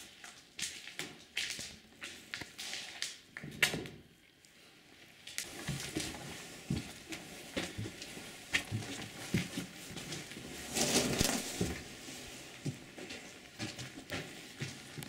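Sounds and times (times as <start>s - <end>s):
footsteps scuffing: 5.4s - 15.0s.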